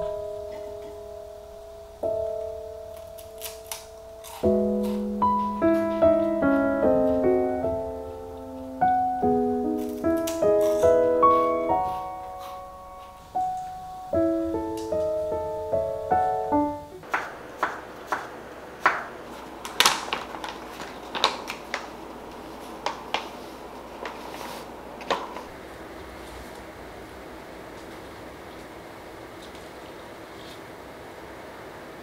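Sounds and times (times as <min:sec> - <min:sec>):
gentle piano music: 0:00.0 - 0:17.7
knife chopping on wooden board: 0:17.0 - 0:19.1.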